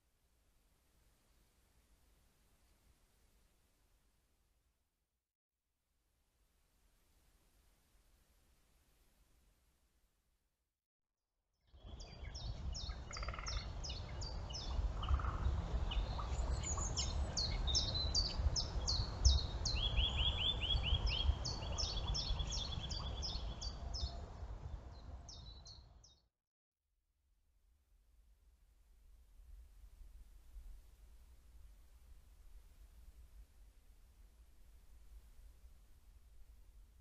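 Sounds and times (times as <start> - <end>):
songbirds singing: 11.8 - 26.2.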